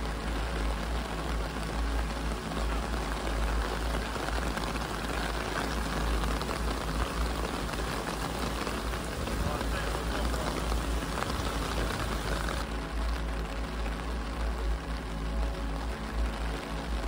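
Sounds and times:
rain spattering: 0.0s - 17.0s.

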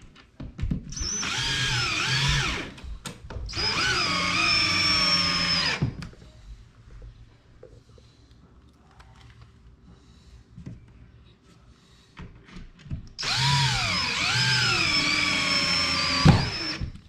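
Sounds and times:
cordless drill motor whine: 1.0s - 2.8s, 3.5s - 5.9s, 13.2s - 17.0s.

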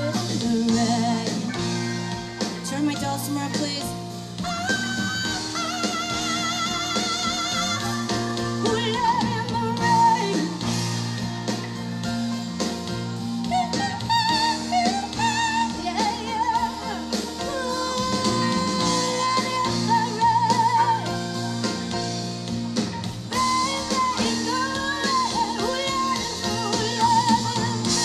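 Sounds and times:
live band playing pop-rock: 0.0s - 28.0s
wavering lead melody: 0.0s - 28.0s.

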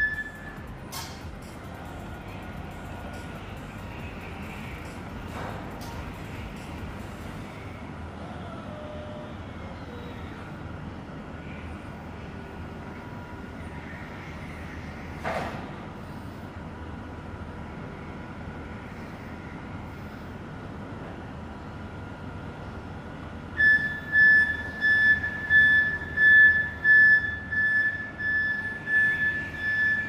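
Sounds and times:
forklift warning beeper: 0.0s - 0.6s, 23.6s - 30.0s.

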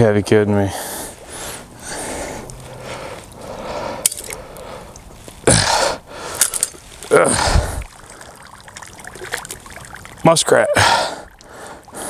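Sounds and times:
water sloshing: 6.3s - 12.0s.

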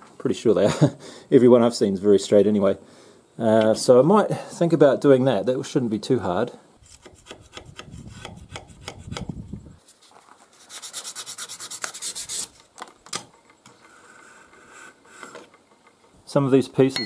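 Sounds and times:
metal rubbed on sandpaper: 6.8s - 12.6s.

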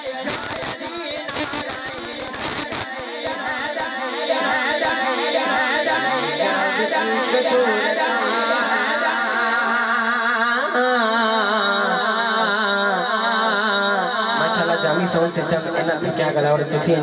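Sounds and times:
sharp clicks: 0.0s - 5.0s, 5.6s - 6.0s
boy singing through loudspeakers: 0.0s - 17.0s.

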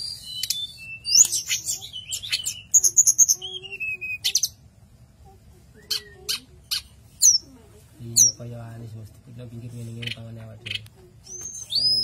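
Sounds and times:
bird singing sharp chirps: 10.0s - 12.0s.

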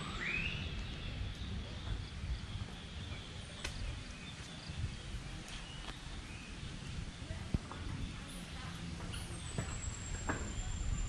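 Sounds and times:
bird call rising in pitch: 0.0s - 0.8s.

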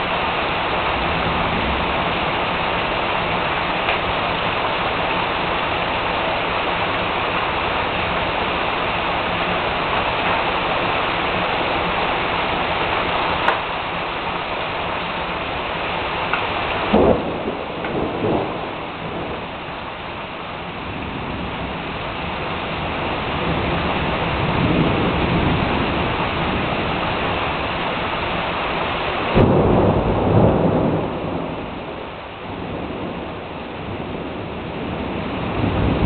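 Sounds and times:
steady rain falling: 0.0s - 36.0s
thunder rumbling: 0.0s - 36.0s
sharp thunderclap: 16.8s - 19.6s, 29.3s - 36.0s.

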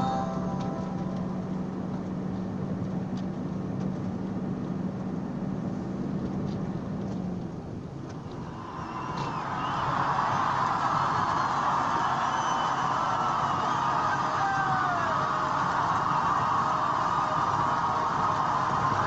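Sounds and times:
steady low hum: 0.0s - 6.8s
truck engine and road noise: 0.0s - 19.0s.

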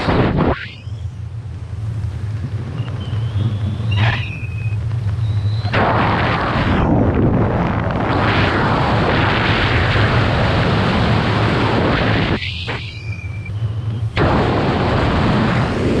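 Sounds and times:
wind rushing over microphone: 0.0s - 16.0s
high wavering whistle: 2.8s - 5.7s, 12.8s - 14.1s.

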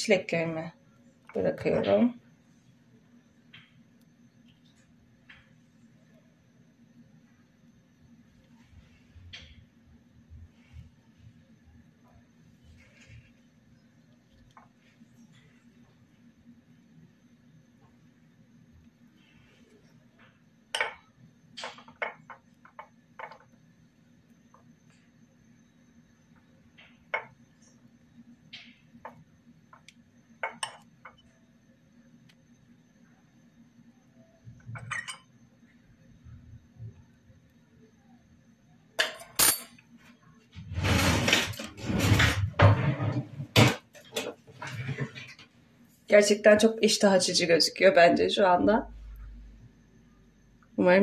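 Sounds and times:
faint low hum: 0.0s - 51.0s
rustling and shuffling: 12.2s - 16.2s
kitchen utensils clinking: 34.8s - 35.3s, 39.0s - 39.8s.

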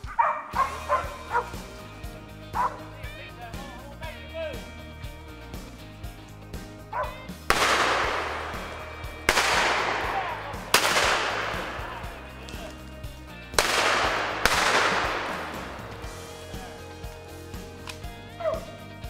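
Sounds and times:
echoing gunshots: 7.4s - 12.7s, 13.4s - 16.2s.

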